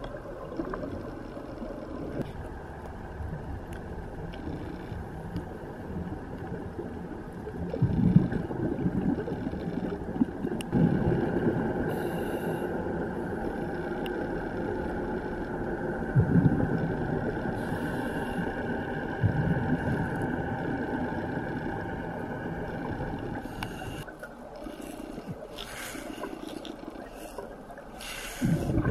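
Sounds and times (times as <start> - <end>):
steady hum: 0.0 - 28.9
exhaled bubbles rushing underwater: 6.0 - 12.0, 28.4 - 28.9.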